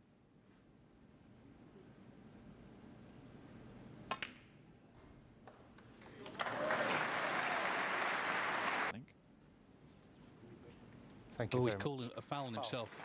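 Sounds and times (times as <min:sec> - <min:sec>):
crowd applauding: 0:06.1 - 0:08.9.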